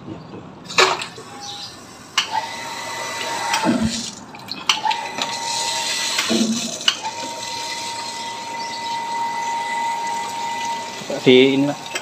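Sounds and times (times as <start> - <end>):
water gushing onto concrete: 3.0 - 8.4.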